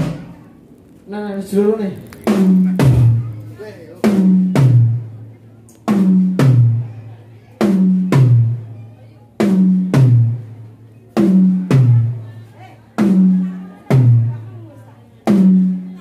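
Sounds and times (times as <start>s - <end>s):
drum toms struck: 0.0s - 0.4s, 2.3s - 3.4s, 4.0s - 5.2s, 5.9s - 6.9s, 7.6s - 8.7s, 9.4s - 10.5s, 11.2s - 12.2s, 13.0s - 14.4s.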